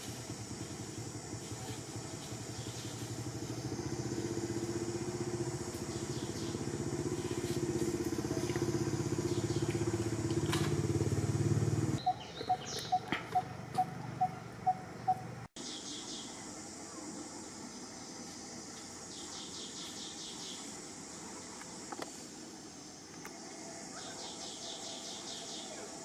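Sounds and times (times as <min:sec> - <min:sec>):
motor engine droning: 0:00.0 - 0:15.5.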